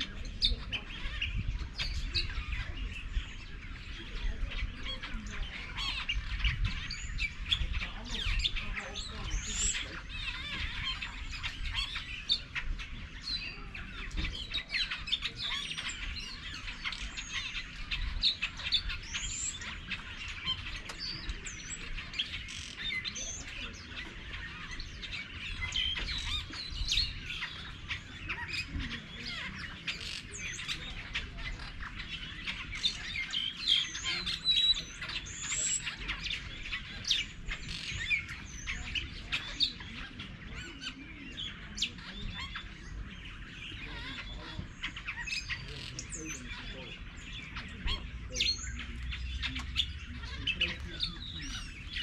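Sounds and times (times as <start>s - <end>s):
birds chirping and calling: 0.0s - 52.0s.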